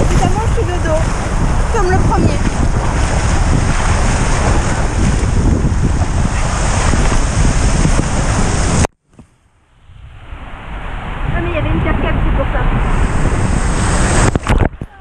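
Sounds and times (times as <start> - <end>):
rushing water: 0.0 - 8.9, 10.2 - 15.0
wind buffeting microphone: 0.0 - 15.0.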